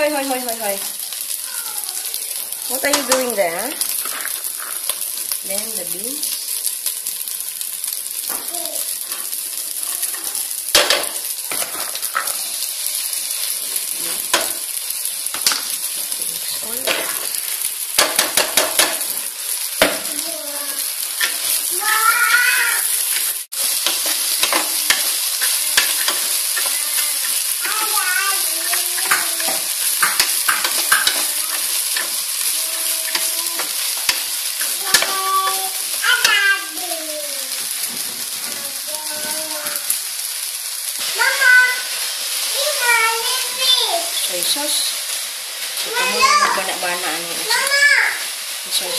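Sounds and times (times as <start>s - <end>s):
rice sizzling in a pot: 0.0s - 48.9s
utensils knocking against pot: 18.0s - 19.1s, 23.8s - 25.1s, 29.0s - 31.3s
spoon scraping and knocking a pot: 29.0s - 31.3s.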